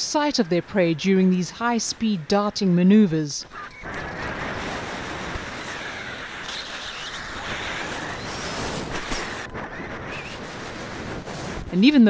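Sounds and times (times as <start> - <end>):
wind noise on microphone: 3.4 - 12.0.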